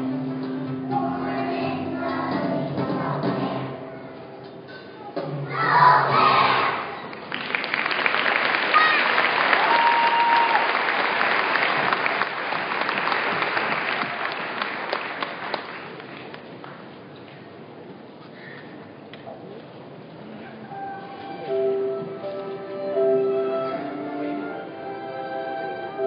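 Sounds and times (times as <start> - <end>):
audience applauding: 7.1 - 16.4.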